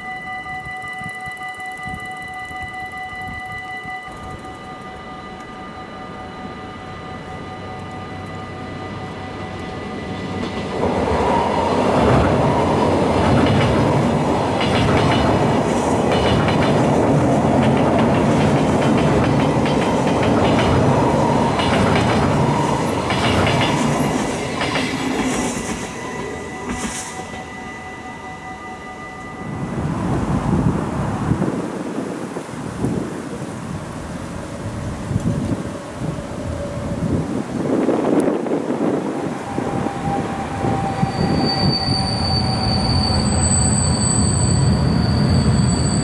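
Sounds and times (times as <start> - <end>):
train wheels clattering over rail joints: 11.8 - 27.4.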